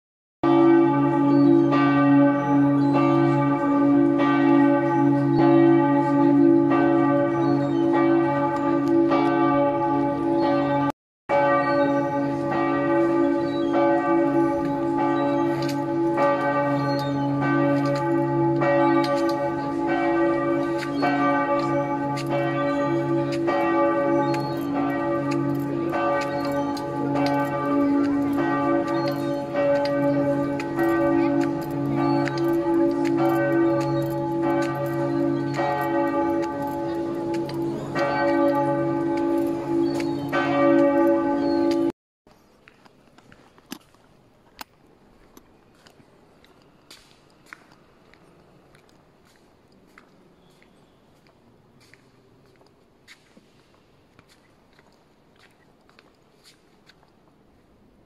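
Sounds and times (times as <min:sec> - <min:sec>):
church bells pealing: 0:00.4 - 0:41.9.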